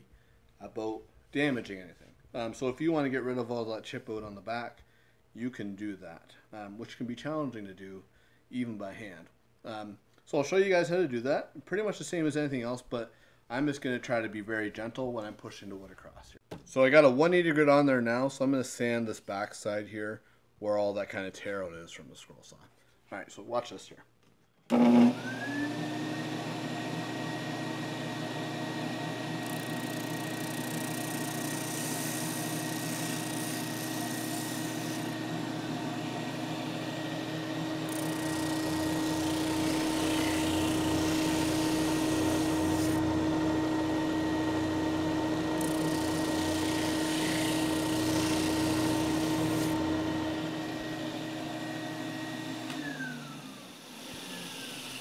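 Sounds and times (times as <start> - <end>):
drum sander motor whine: 24.7 - 54.9.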